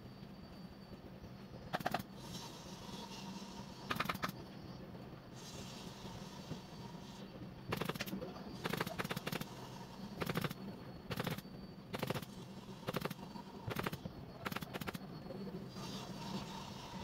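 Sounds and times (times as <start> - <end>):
pneumatic staple gun firing: 7.7 - 9.4, 10.2 - 11.4.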